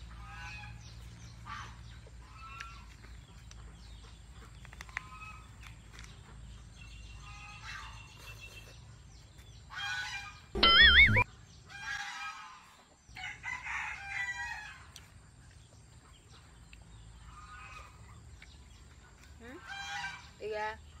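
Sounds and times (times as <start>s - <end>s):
farmyard fowl calling: 0.1s - 0.8s, 9.7s - 12.8s.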